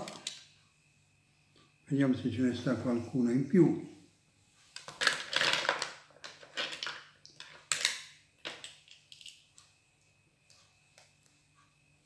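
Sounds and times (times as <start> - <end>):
mussel shells clattering: 4.8 - 9.4.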